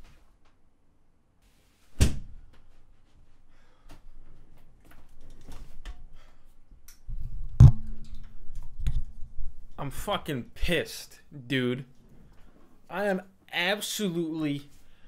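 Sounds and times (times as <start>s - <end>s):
door slamming shut: 2.0s - 2.4s
small clicks and rustles: 4.2s - 6.1s.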